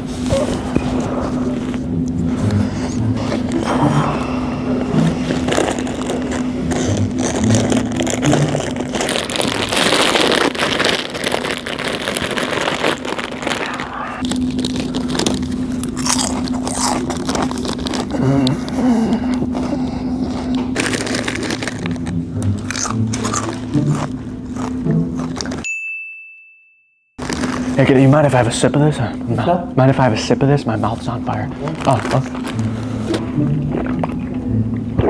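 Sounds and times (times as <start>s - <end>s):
steady low hum: 0.0s - 25.6s, 27.2s - 35.0s
crunching and chewing chips: 4.9s - 25.6s, 27.2s - 28.5s, 31.4s - 34.2s.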